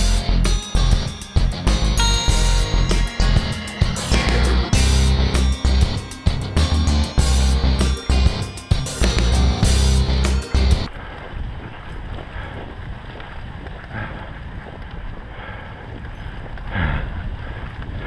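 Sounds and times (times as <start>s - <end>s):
rock music: 0.0s - 10.9s
sled runners scraping on snow: 10.9s - 18.0s
wind on microphone: 10.9s - 18.0s.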